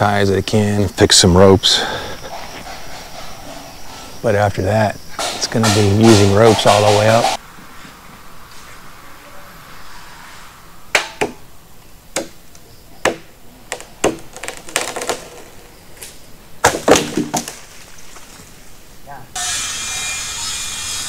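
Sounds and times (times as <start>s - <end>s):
machete chopping wood: 16.6s - 17.6s.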